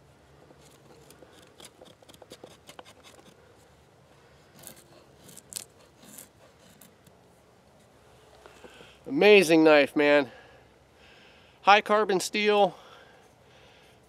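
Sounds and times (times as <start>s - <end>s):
knife scraping wooden stick: 0.4s - 3.4s, 4.5s - 7.1s.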